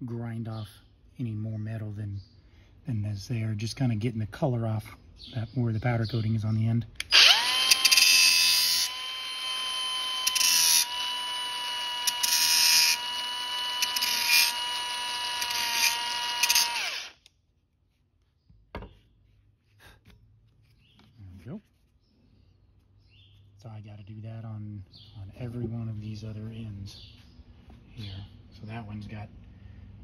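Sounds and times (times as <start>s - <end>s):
angle grinder whining: 7.0s - 17.3s
grinding disc rasping on metal: 7.4s - 17.1s.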